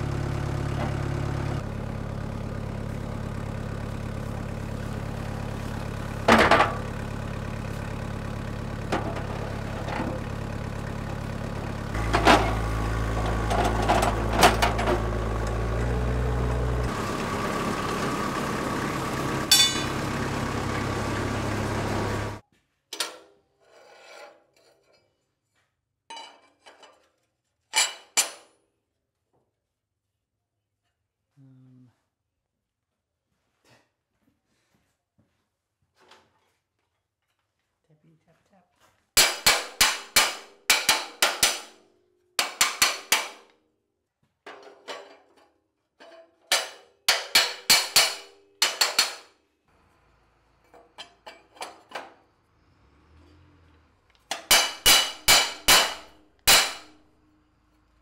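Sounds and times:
engine running: 0:00.0 - 0:22.4, 0:49.7 - 0:58.0
steel table clanking: 0:19.5 - 0:19.9.

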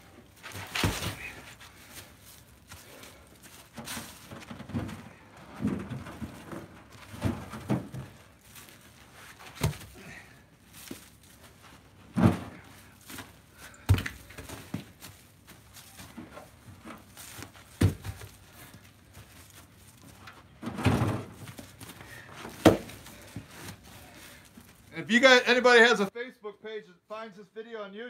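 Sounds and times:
logs thudding onto woodpile: 0:00.4 - 0:02.0, 0:03.6 - 0:08.8, 0:09.4 - 0:11.1, 0:12.1 - 0:15.2, 0:15.9 - 0:24.5.

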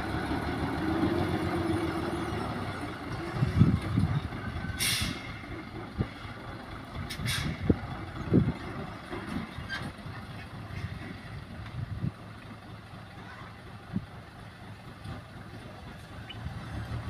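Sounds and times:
diesel truck engine running: 0:00.0 - 0:17.0
short hiss of air: 0:04.8 - 0:05.4.

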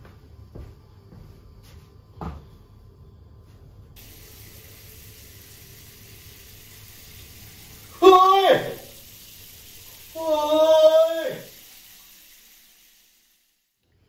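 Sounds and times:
shower water hissing: 0:04.0 - 0:14.0.

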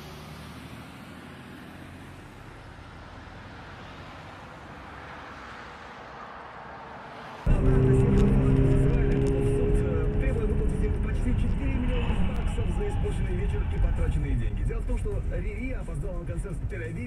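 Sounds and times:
street traffic: 0:00.0 - 0:17.0
loud recording: 0:07.4 - 0:17.0
car engine idling: 0:07.5 - 0:16.6.

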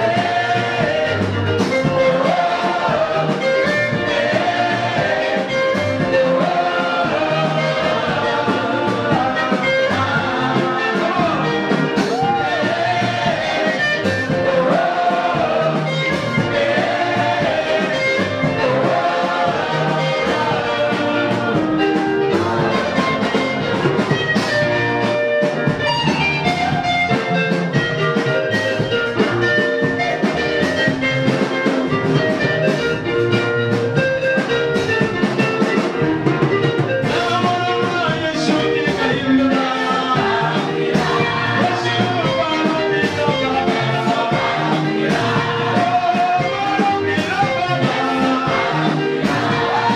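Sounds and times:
lead singer on microphone: 0:00.0 - 0:24.5, 0:36.8 - 0:49.9
choir singing: 0:00.0 - 0:24.8, 0:37.0 - 0:49.9
instrumental accompaniment with beat: 0:00.0 - 0:49.9.

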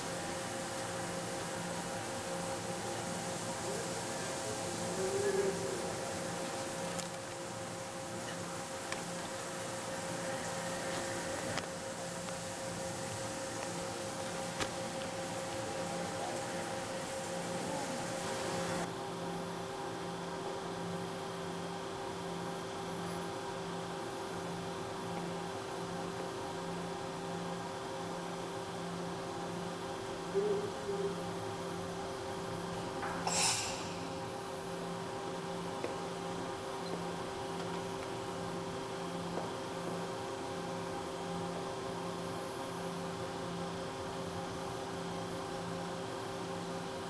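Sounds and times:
machine hum with high whine: 0:00.0 - 0:47.0
low machine tone: 0:07.5 - 0:18.9.

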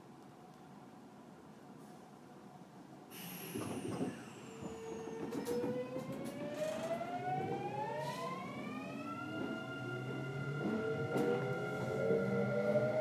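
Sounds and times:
train inverter whine rising: 0:03.2 - 0:13.0.

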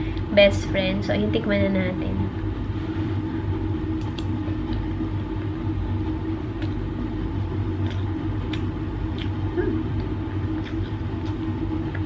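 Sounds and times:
low mechanical hum: 0:00.0 - 0:12.0
person chewing: 0:07.8 - 0:12.0.

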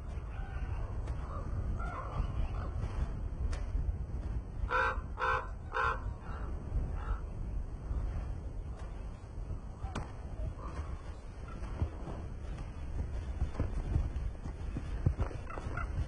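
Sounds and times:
bird cawing harshly: 0:04.7 - 0:07.2.

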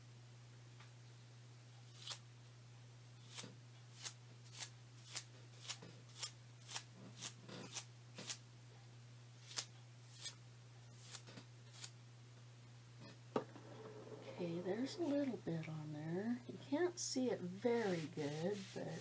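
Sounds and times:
steady low hum: 0:00.0 - 0:19.0
paintbrush bristles flicking: 0:17.8 - 0:19.0.

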